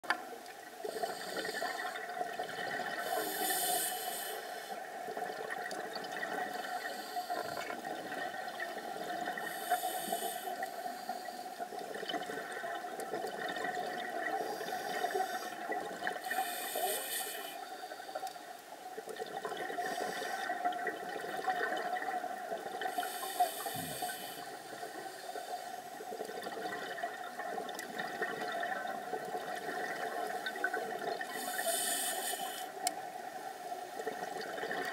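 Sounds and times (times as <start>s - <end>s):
underwater hiss: 0.8s - 5.0s, 6.3s - 8.0s, 8.9s - 11.7s, 14.2s - 18.4s, 19.7s - 20.7s, 22.7s - 26.2s, 29.6s - 33.0s
exhaled bubbles rushing: 26.1s - 31.3s.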